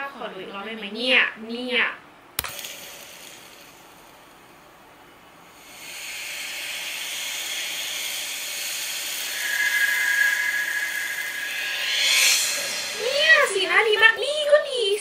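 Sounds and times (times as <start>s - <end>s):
hissing noise: 5.4s - 14.5s
high eerie tone: 5.5s - 14.7s.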